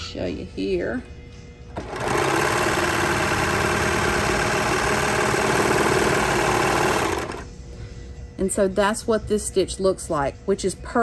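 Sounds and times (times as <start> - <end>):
serger sewing machine running: 1.7 - 7.4.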